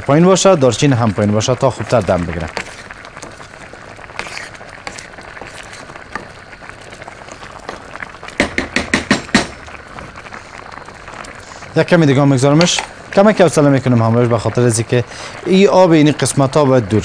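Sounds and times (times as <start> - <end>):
rice simmering hiss: 0.0 - 17.0
spatula stirring rice in pot: 1.6 - 9.4
spatula scraping and knocking pot: 2.5 - 2.9, 4.1 - 6.3.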